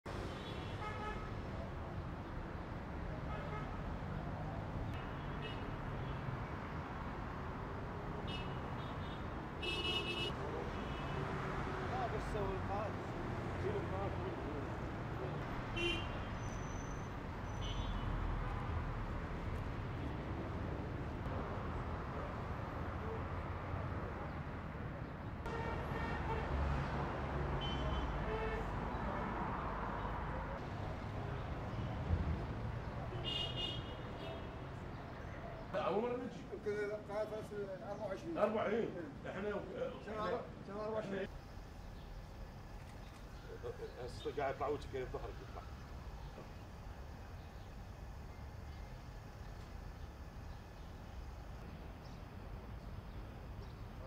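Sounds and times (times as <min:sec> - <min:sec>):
city street traffic rumble: 0:00.0 - 0:54.0
passing cars: 0:00.1 - 0:36.1.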